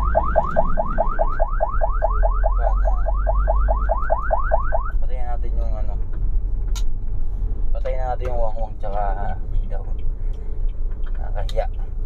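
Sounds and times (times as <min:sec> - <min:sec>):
siren yelping: 0:00.0 - 0:05.0
low vehicle rumble: 0:00.0 - 0:12.0.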